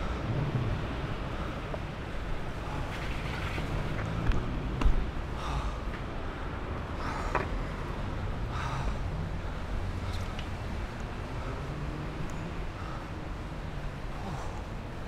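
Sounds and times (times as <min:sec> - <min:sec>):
faint street traffic: 0:00.0 - 0:15.0
longboard wheels rumbling: 0:00.0 - 0:15.0.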